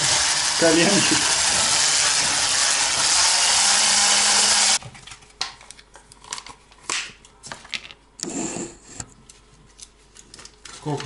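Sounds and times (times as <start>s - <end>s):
hand blender whirring: 0.0s - 4.8s.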